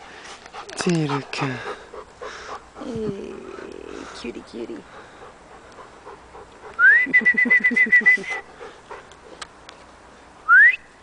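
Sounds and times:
person whistling: 0:06.8 - 0:08.4, 0:10.5 - 0:10.9.

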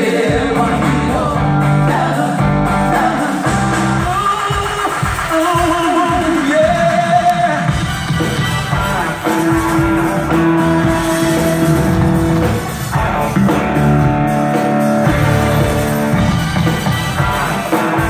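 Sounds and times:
bass: 0:00.0 - 0:18.0
drums: 0:00.0 - 0:18.0
electric guitar: 0:00.1 - 0:18.0
held keyboard chords: 0:07.6 - 0:18.0.

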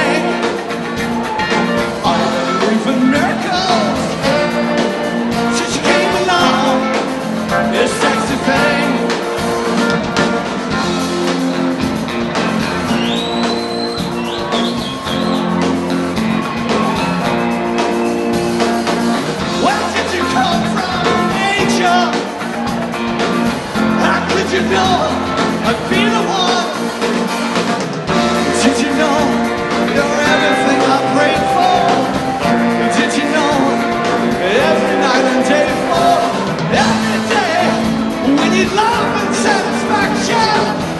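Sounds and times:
live rock band playing: 0:00.0 - 0:40.9.

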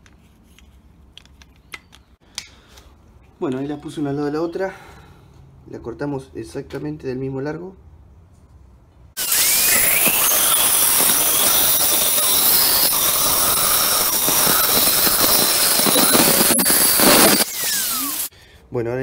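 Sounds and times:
angle grinder cutting metal: 0:09.2 - 0:18.3.

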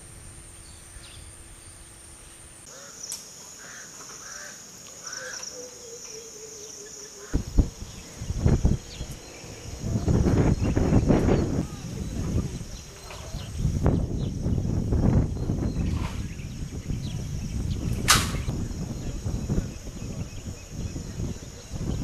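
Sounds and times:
insect buzzing: 0:00.0 - 0:22.0
low rumbling bursts: 0:07.4 - 0:22.0.

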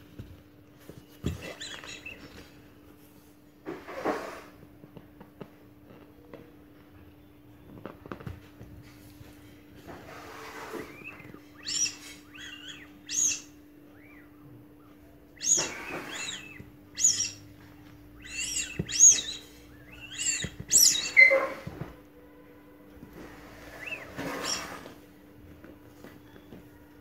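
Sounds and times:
rubber balloon squeaking: 0:01.2 - 0:02.4, 0:10.0 - 0:13.5, 0:15.4 - 0:17.5, 0:18.2 - 0:21.8, 0:23.6 - 0:25.0.

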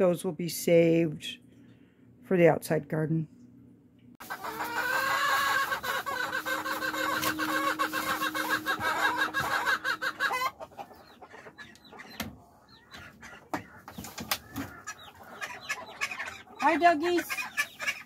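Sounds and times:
hens clucking: 0:04.2 - 0:18.0
steady hum: 0:05.6 - 0:10.8.

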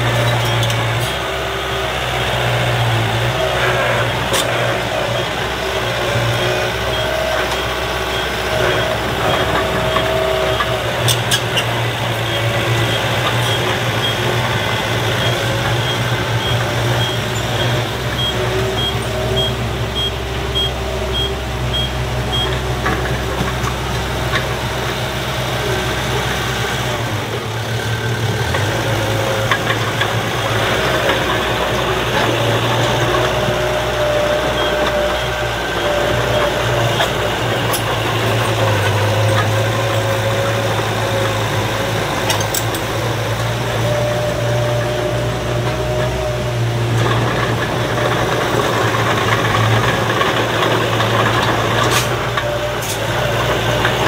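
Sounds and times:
bulldozer diesel engine running: 0:00.0 - 0:54.0
dump truck engine running: 0:00.0 - 0:54.0.

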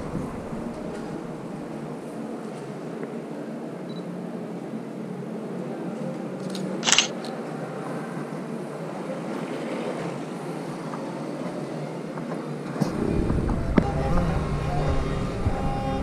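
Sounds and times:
steady background hum: 0:00.0 - 0:16.0
camera shutter click: 0:06.4 - 0:07.3.

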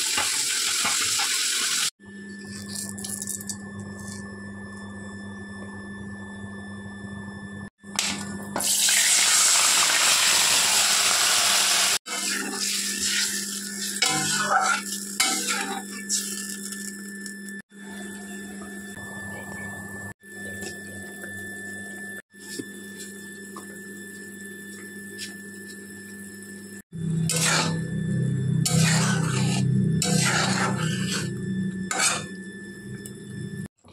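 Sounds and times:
loud sizzle in hot oil: 0:00.0 - 0:01.9, 0:08.6 - 0:17.5.

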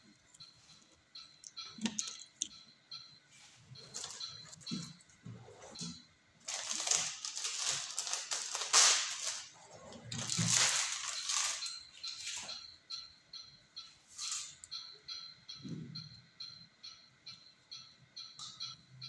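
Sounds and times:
crinkling handling noise: 0:03.4 - 0:12.6.

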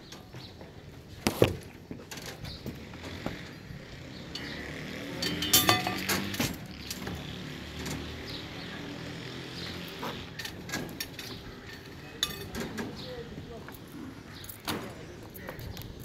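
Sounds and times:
steel bars clinking: 0:04.3 - 0:07.0, 0:10.4 - 0:12.9.

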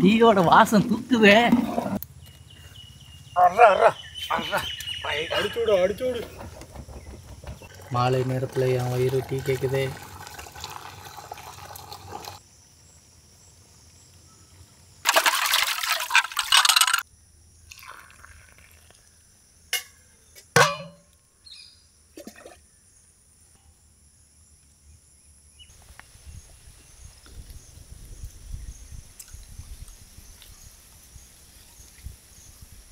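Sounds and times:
tea pouring and splashing: 0:07.7 - 0:12.4, 0:15.0 - 0:17.0, 0:17.6 - 0:19.2
glass and plate knocking: 0:20.6 - 0:21.0.

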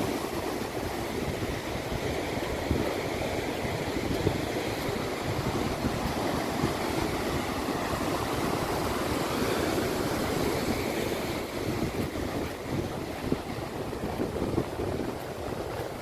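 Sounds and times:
surf breaking on beach: 0:00.0 - 0:16.0
wind buffeting microphone: 0:00.0 - 0:16.0.

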